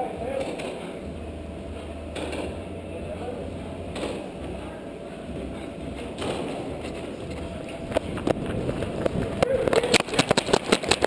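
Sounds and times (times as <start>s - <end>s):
indoor background noise: 0.0s - 11.0s
sharp cracks: 7.9s - 11.0s.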